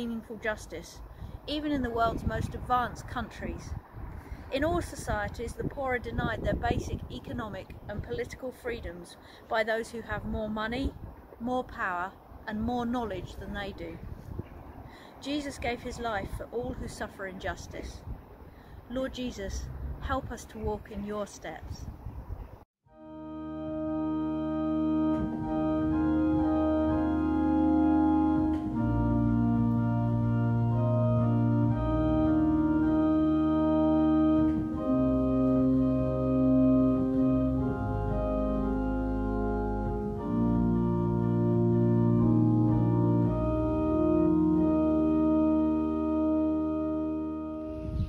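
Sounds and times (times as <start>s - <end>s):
organ playing slow chords: 22.9s - 48.0s.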